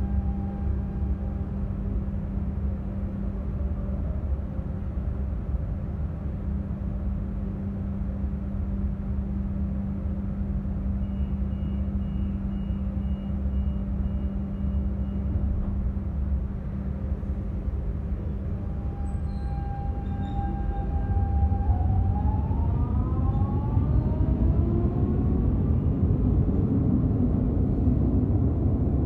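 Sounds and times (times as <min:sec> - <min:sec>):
train humming and rumbling: 0:00.0 - 0:29.0
high whine: 0:18.0 - 0:29.0.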